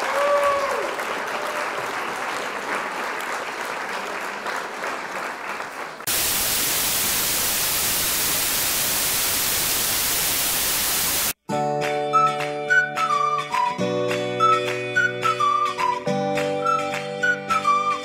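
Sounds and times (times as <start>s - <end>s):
noisy crackling rush: 6.1s - 11.4s
steady static hiss: 6.1s - 11.4s
music with held notes: 11.4s - 18.0s.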